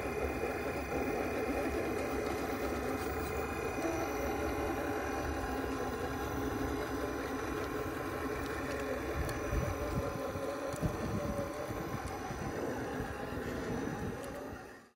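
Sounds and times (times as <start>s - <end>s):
toy car motor whining: 0.0s - 14.9s
wind rumbling on microphone: 9.0s - 14.7s.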